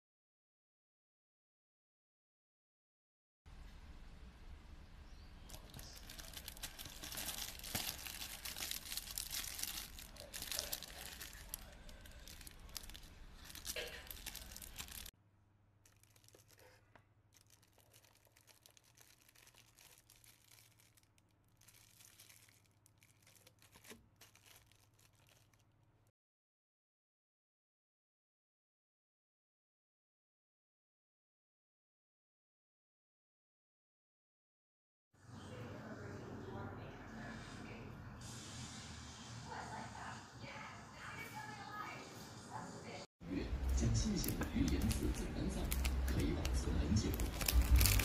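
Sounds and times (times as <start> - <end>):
plastic bags crinkling: 5.5 - 15.1, 15.8 - 25.8, 44.2 - 48.0.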